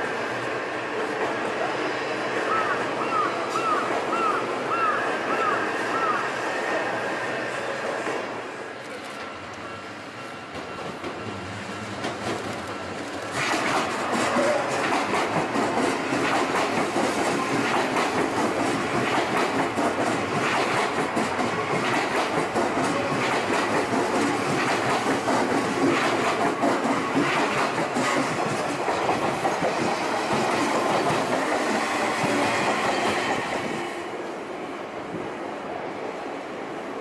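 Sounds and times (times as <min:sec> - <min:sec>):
train wheels clacking over joints: 0:10.2 - 0:34.0.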